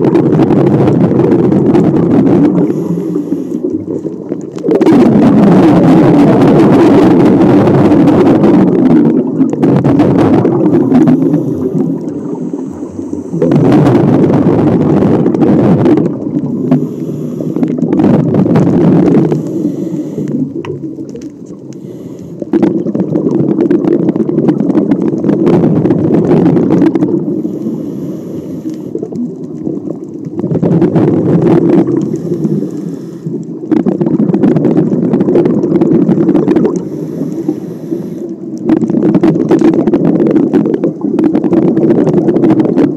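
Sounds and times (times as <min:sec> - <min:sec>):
exhaled bubbles underwater: 0:00.0 - 0:42.9
regulator inhale hiss: 0:02.6 - 0:04.0, 0:10.8 - 0:13.5, 0:16.5 - 0:17.8, 0:19.2 - 0:20.6, 0:21.7 - 0:22.6, 0:27.2 - 0:29.1, 0:32.0 - 0:33.5, 0:36.8 - 0:38.4.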